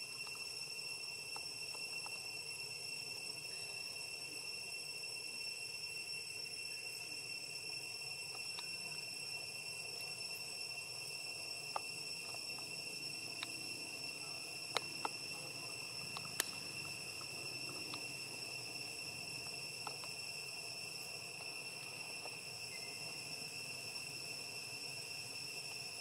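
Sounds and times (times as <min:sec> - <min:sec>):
high-pitched insect drone: 0:00.0 - 0:26.0
sharp clicks: 0:16.1 - 0:18.0.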